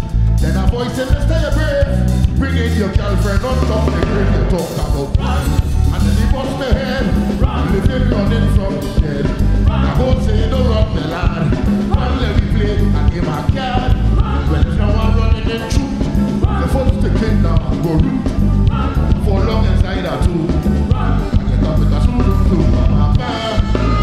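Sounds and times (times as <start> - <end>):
bass guitar: 0.0 - 24.0
drums: 0.0 - 24.0
saxophone: 3.0 - 24.0
brass section: 13.7 - 24.0.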